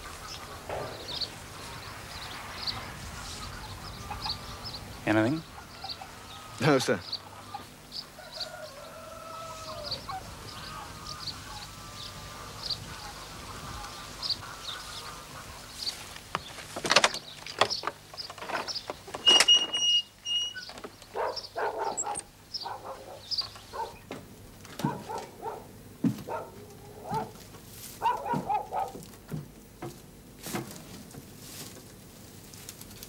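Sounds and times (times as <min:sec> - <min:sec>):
fowl calling: 0:00.0 - 0:16.2, 0:19.3 - 0:24.1, 0:24.8 - 0:29.1
birds chirping: 0:00.0 - 0:33.0
door squeaking open: 0:18.4 - 0:21.0.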